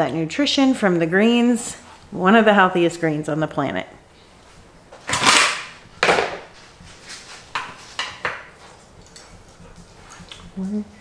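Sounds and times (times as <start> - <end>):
rustling and knocking handling noise: 4.5 - 10.7.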